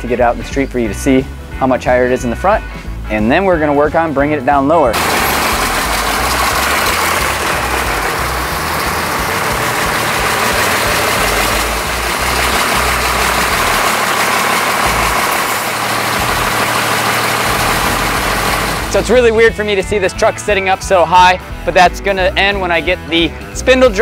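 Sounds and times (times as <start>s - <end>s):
diesel truck engine running: 4.9s - 19.9s.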